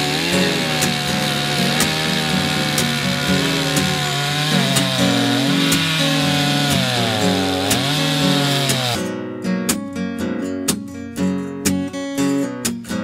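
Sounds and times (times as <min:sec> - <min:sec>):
chainsaw cutting through log: 0:00.0 - 0:09.1.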